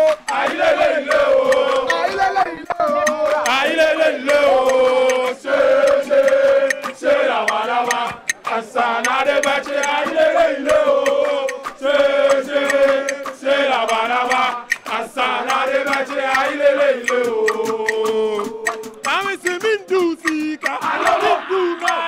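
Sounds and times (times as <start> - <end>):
crowd chanting in unison: 0.0 - 19.1, 20.6 - 22.0
man leading on a microphone: 1.8 - 3.7, 19.0 - 22.0.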